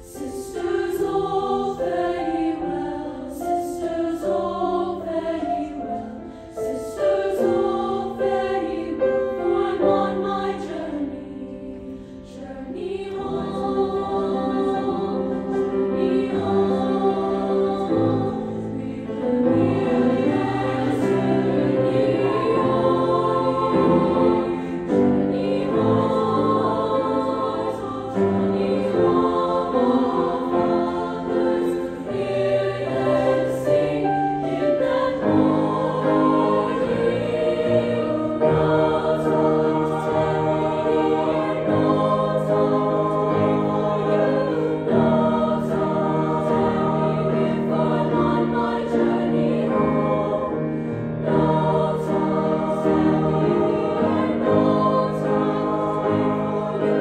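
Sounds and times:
women's choir singing in harmony: 0.0s - 57.0s.

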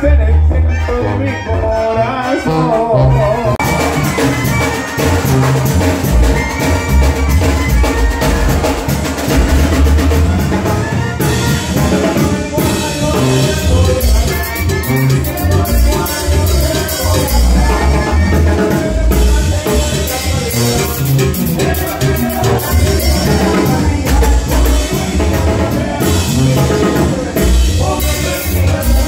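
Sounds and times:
brass band playing live: 0.0s - 29.0s.

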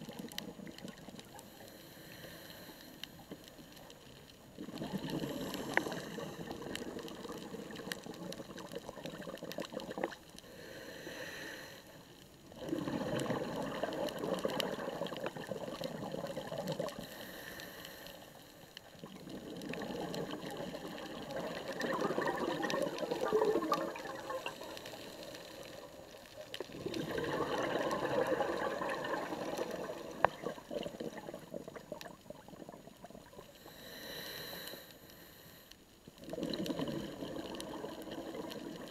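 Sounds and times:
diver exhaling bubbles underwater: 4.6s - 10.2s, 12.6s - 17.1s, 19.0s - 26.0s, 26.6s - 33.7s, 36.2s - 38.9s.

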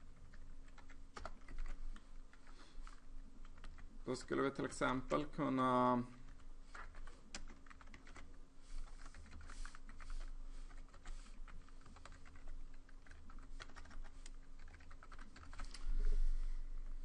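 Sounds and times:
faint steady hum: 0.0s - 17.0s
typing on computer keyboard: 0.2s - 1.8s, 3.4s - 3.8s, 6.2s - 10.0s, 10.7s - 15.8s.

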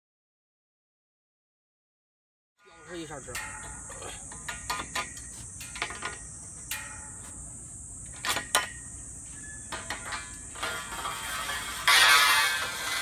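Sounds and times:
steady high hiss: 2.6s - 13.0s
metal fence fittings clicking: 2.8s - 7.2s.

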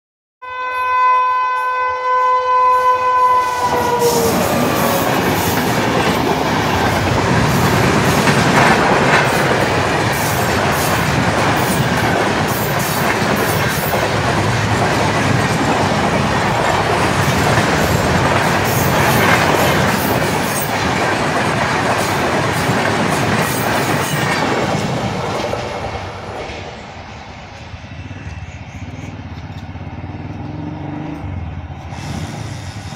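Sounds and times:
locomotive horn blast: 0.4s - 5.6s
train wheels clattering on rails: 3.6s - 32.9s.

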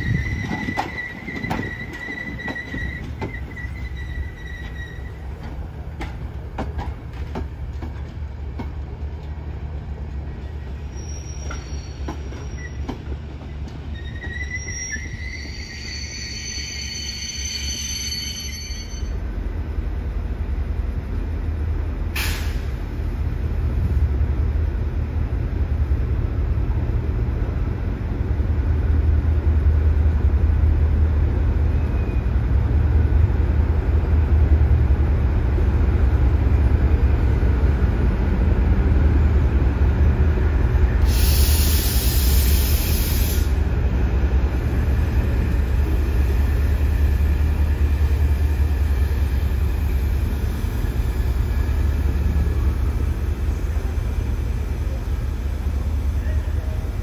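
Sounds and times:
diesel locomotive engines droning: 0.0s - 57.0s
loud air hiss: 22.2s - 22.8s, 41.0s - 43.6s.

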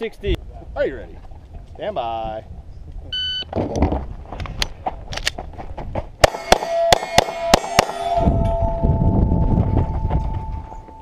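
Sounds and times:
pistol shots: 6.2s - 8.2s
steel target clanging: 6.3s - 8.8s.

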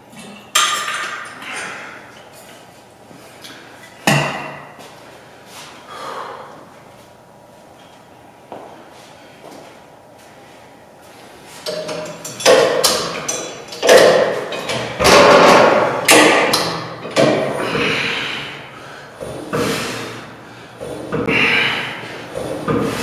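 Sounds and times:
weight stack clanking: 11.6s - 18.6s.

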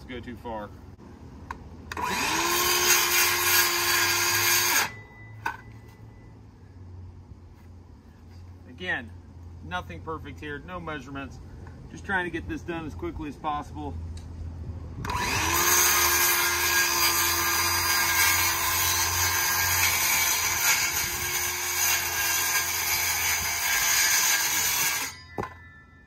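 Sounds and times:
circular saw cutting plywood: 1.9s - 5.0s, 15.0s - 25.6s.

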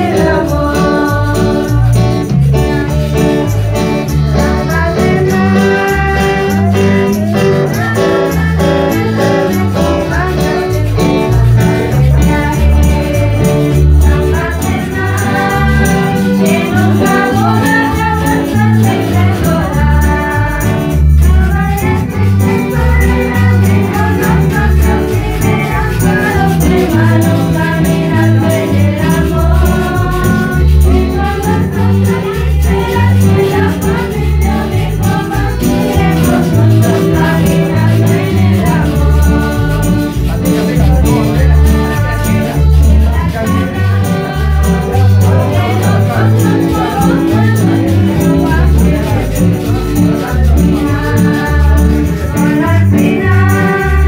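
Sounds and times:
loud music with singing: 0.0s - 54.0s.

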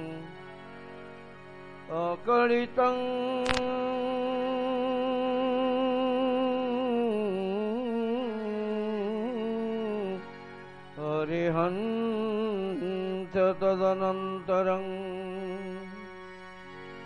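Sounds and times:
man chanting: 1.9s - 10.2s, 11.0s - 16.0s
sharp click: 3.4s - 3.8s.

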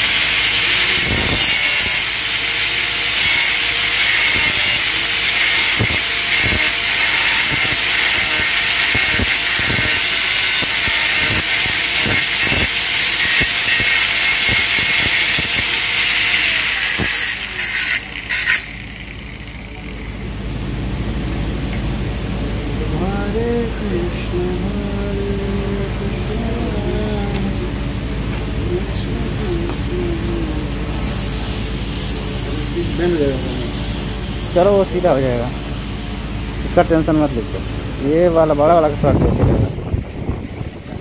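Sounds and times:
angle grinder grinding metal: 0.0s - 20.3s, 31.0s - 35.3s.

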